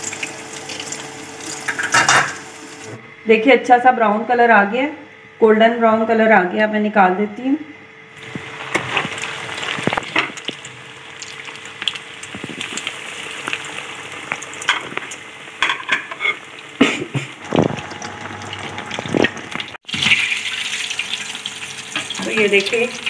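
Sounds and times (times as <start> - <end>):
food sizzling in hot oil: 0.0 - 2.9, 8.2 - 23.0.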